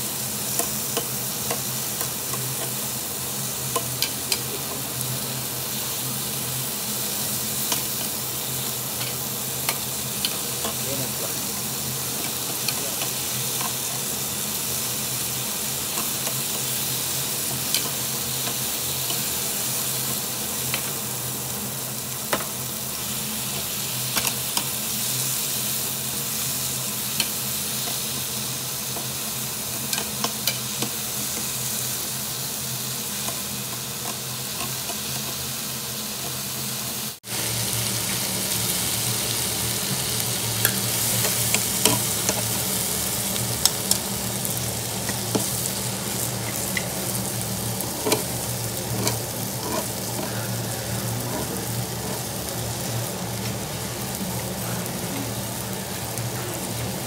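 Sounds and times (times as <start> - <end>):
meat sizzling on a grill: 0.0 - 57.0
metal tongs clicking on grate: 48.0 - 48.3, 48.9 - 50.3.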